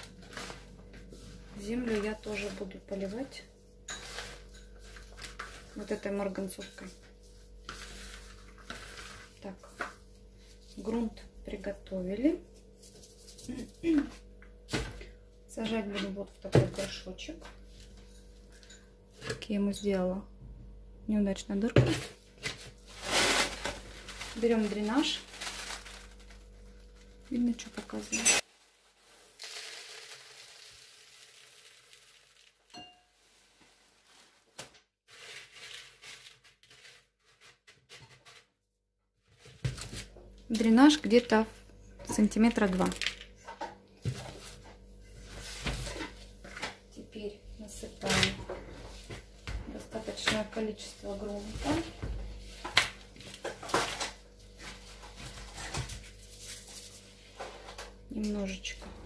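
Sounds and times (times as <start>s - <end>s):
potting soil rustling: 0.0s - 9.9s, 22.8s - 28.1s
pebbles rustling by hand: 28.8s - 32.6s
pebbles pouring into a pot: 29.1s - 32.7s.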